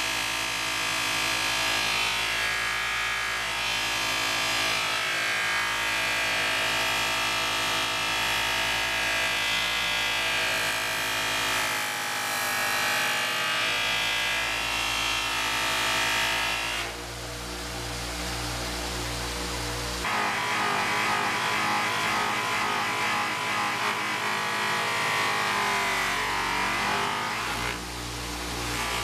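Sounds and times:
electric sander polishing metal: 20.0s - 29.0s.

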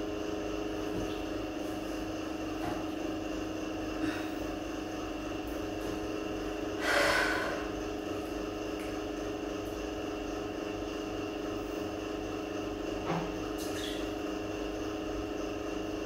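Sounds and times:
steady background hum: 0.0s - 16.0s
person sighing: 4.0s - 4.4s.

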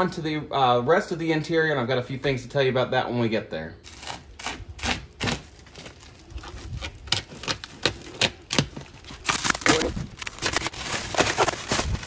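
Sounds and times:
plastic wrap crinkling: 3.8s - 12.0s.

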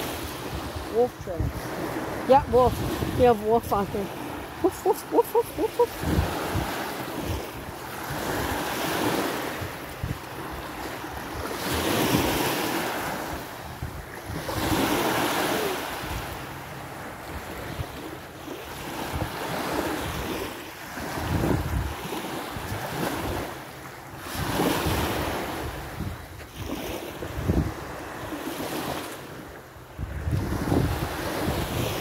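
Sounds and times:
wind buffeting microphone: 0.0s - 12.3s, 21.0s - 23.5s, 24.3s - 28.2s, 29.9s - 32.0s
small waves washing on sandy shore: 0.0s - 32.0s.

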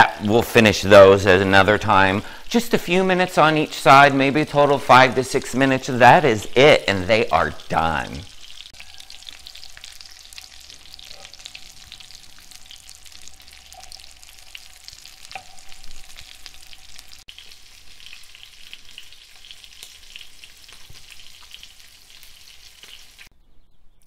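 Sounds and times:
croquettes sizzling in oil: 4.8s - 23.3s.

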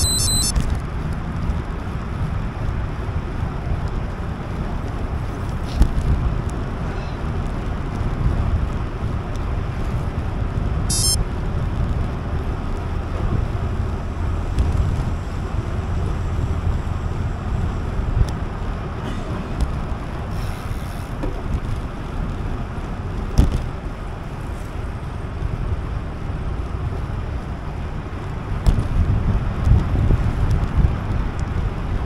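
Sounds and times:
brief high-pitched chirp: 0.0s - 0.5s, 10.9s - 11.2s
wind rushing over microphone: 21.1s - 32.0s.

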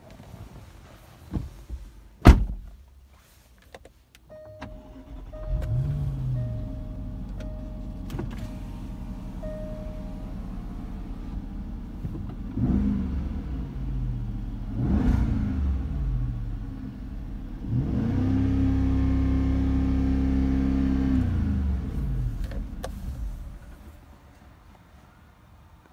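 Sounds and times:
car engine idling and revving: 4.3s - 24.1s.

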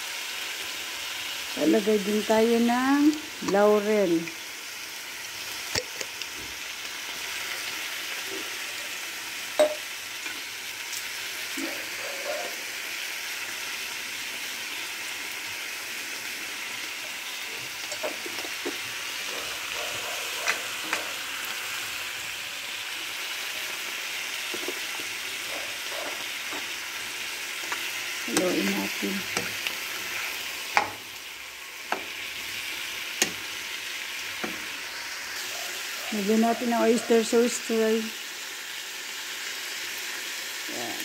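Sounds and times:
chicken sizzling in a frying pan: 0.0s - 41.0s.

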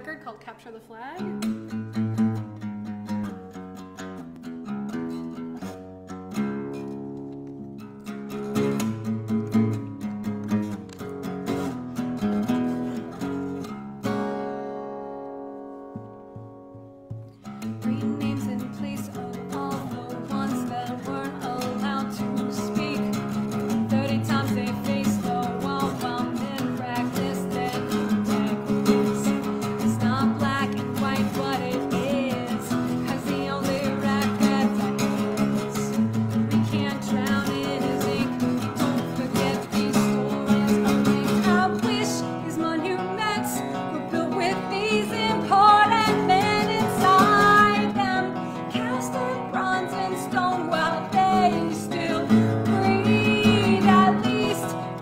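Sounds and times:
acoustic guitar strumming: 0.0s - 55.0s
woman singing: 17.6s - 55.0s.

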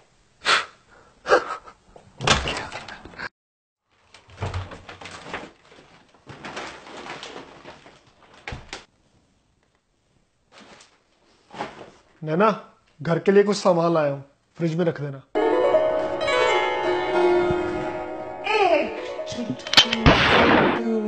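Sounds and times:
front door opening and shutting: 2.2s - 3.2s
plastic bags rustling: 3.9s - 8.9s, 10.5s - 12.2s.

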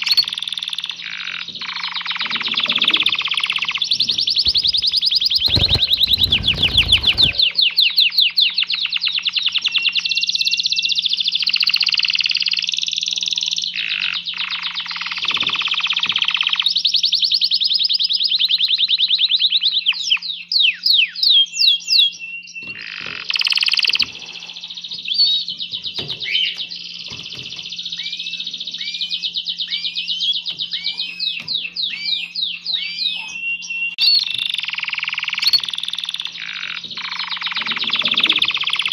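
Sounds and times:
canary singing trills: 0.0s - 38.9s
birds flapping rustle: 4.3s - 7.6s.

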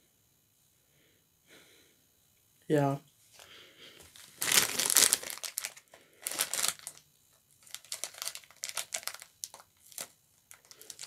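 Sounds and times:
plastic bag crinkling: 4.1s - 7.0s, 7.6s - 11.0s.

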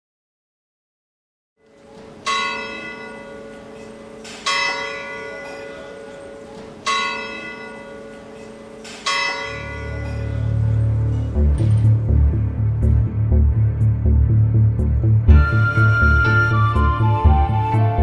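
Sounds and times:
church bell tolling: 1.7s - 12.4s
low music: 1.7s - 18.0s.

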